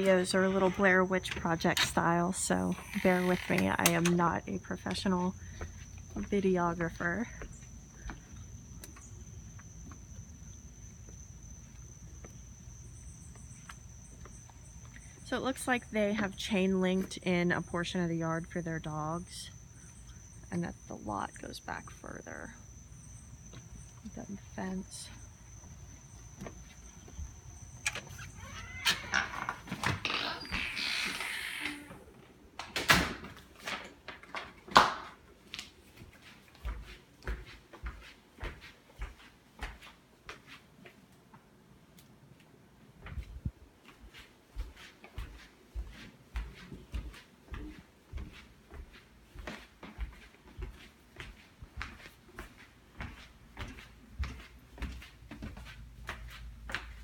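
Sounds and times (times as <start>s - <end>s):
door noise: 0.0s - 4.4s, 27.8s - 34.6s
insects trilling: 0.0s - 32.1s
footsteps on hardwood floor: 5.1s - 6.4s, 25.1s - 27.4s, 36.0s - 40.6s, 43.0s - 57.0s.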